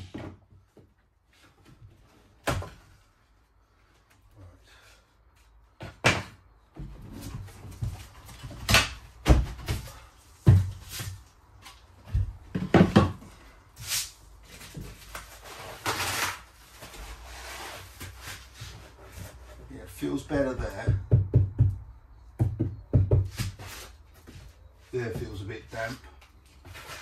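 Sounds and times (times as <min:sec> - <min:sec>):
wooden boards knocking and clattering: 0:05.8 - 0:10.9, 0:12.0 - 0:13.4.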